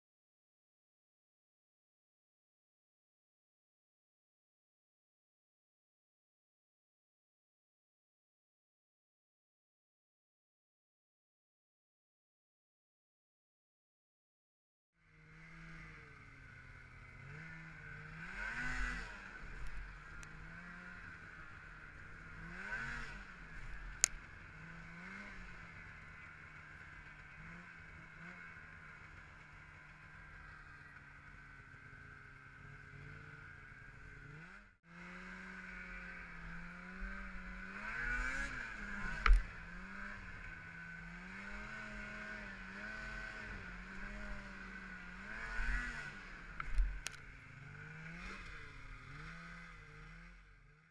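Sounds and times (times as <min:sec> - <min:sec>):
snowmobile engine revving: 0:15.1 - 0:50.9.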